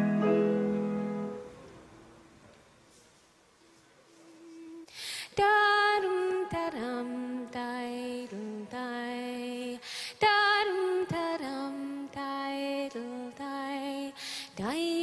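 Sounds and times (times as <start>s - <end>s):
woman singing unaccompanied: 4.6s - 15.0s.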